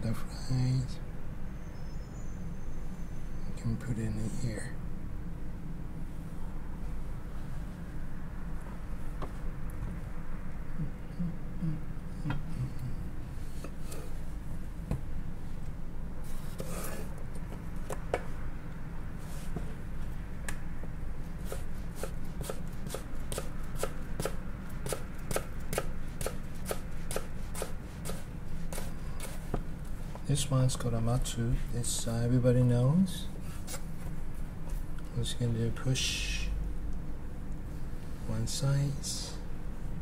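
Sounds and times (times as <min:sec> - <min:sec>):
steady low hum: 0:00.0 - 0:40.0
knife chopping on wooden board: 0:21.4 - 0:29.6.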